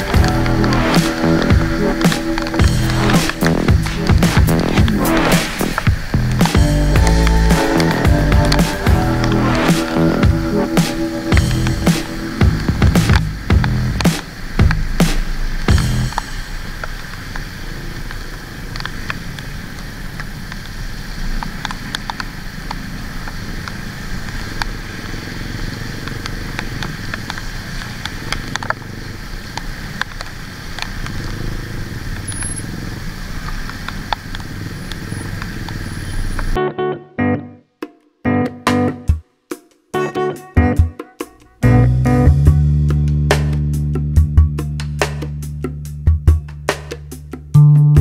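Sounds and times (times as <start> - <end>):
motorcycle engine running: 0.0 - 17.2, 21.8 - 36.6
rain and wet tyres hissing: 0.0 - 36.6
sharp ticks: 0.0 - 36.6.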